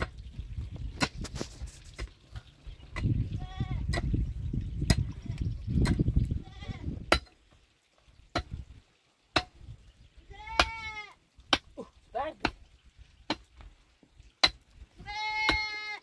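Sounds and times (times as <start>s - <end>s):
livestock bleating: 6.4s - 6.9s, 10.3s - 11.2s, 15.0s - 16.0s.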